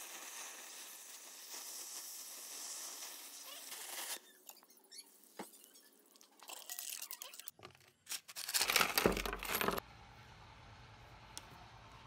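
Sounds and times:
metal parts clattering onto wood: 8.5s - 9.8s.

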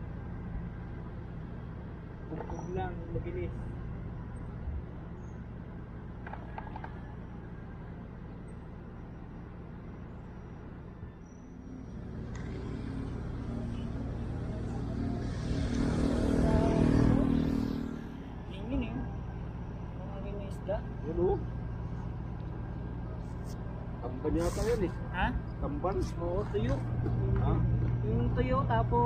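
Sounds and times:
engine low hum: 0.0s - 29.0s
second engine running: 11.3s - 29.0s.

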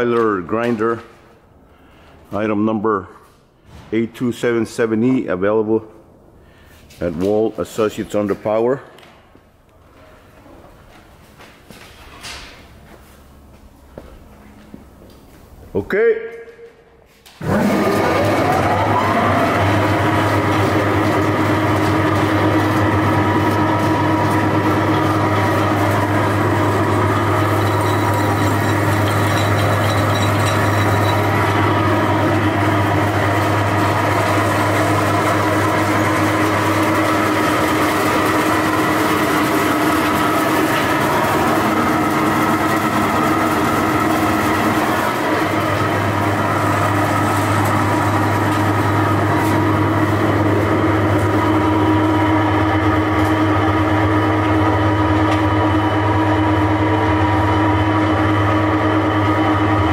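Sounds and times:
electric grinder whining: 17.4s - 53.9s.

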